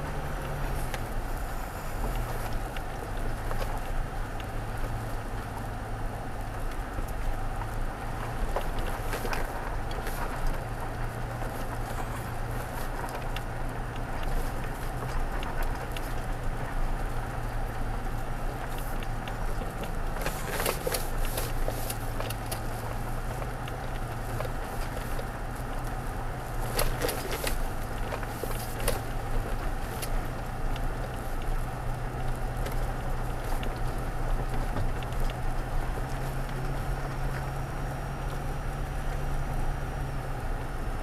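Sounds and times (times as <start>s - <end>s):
engine hum: 0.0s - 41.0s
tyres on gravel: 0.0s - 41.0s
sharp clicks and crackles: 6.6s - 39.2s.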